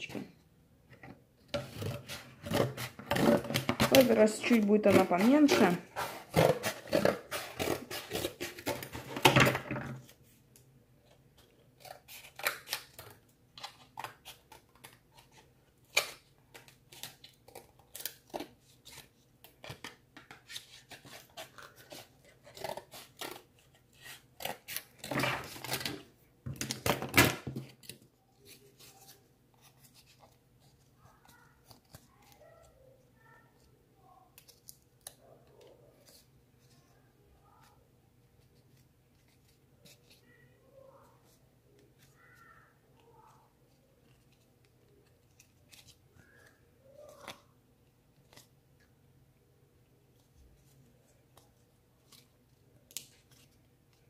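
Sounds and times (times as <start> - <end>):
scissors cutting cardboard: 1.5 - 9.3, 20.5 - 26.0.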